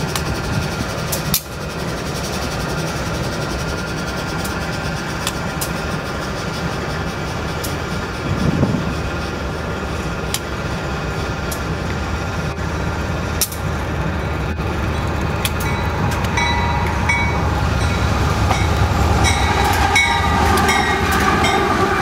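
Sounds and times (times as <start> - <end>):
diesel locomotive engine rumble: 0.0 - 22.0
wind noise on microphone: 8.2 - 9.2.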